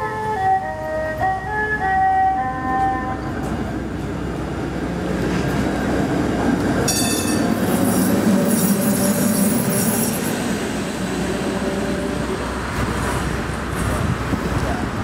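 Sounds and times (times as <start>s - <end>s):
streetcar passing: 0.0s - 15.0s.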